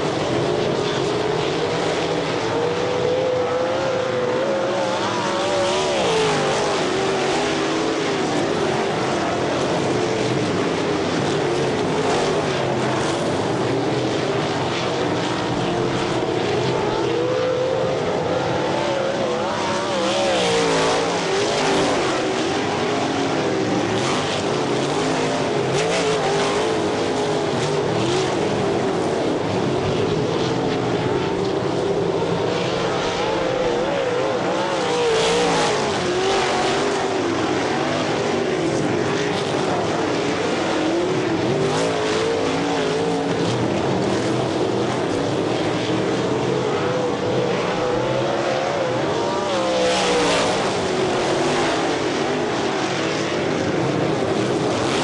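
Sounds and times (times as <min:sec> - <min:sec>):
sprint car engines racing: 0:00.0 - 0:55.0.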